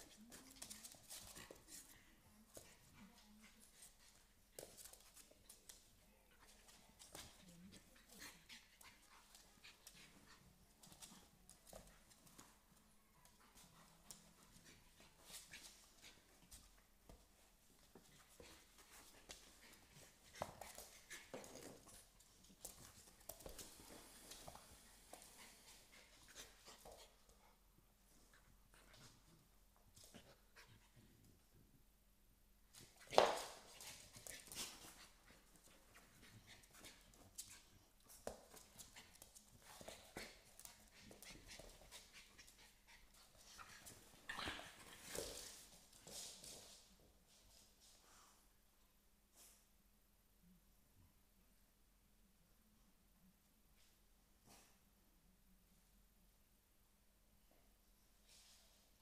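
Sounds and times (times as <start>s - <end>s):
puppies scuffling: 32.8s - 47.6s.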